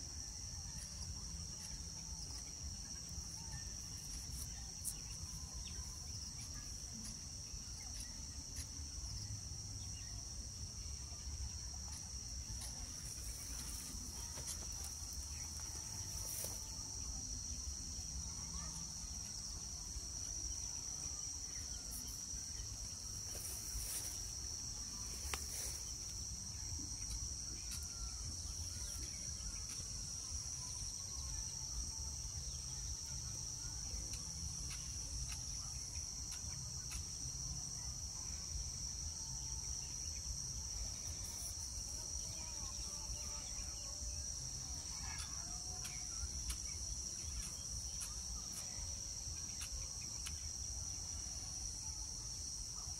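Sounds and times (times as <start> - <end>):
insects chirring: 0.0 - 52.9.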